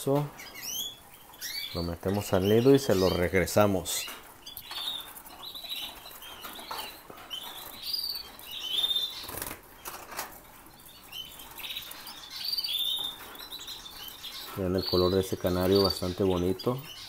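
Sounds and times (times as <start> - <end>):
canaries chirping: 0.0 - 17.0
wing fluttering: 9.1 - 10.4.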